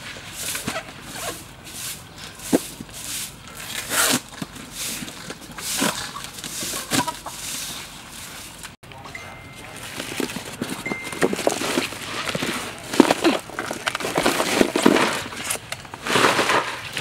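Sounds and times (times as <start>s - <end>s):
broom sweeping dirt: 0.0s - 8.8s, 16.0s - 17.0s
sharp knocks and scrapes: 0.0s - 8.8s, 9.9s - 17.0s.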